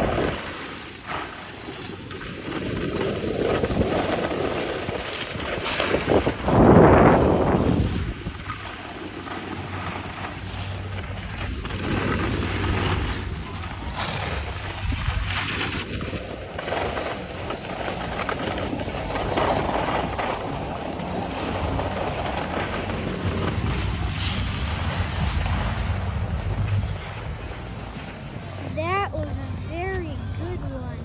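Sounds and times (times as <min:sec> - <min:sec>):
skis sliding on packed snow: 0:00.0 - 0:29.0
wind buffeting microphone: 0:00.0 - 0:31.0.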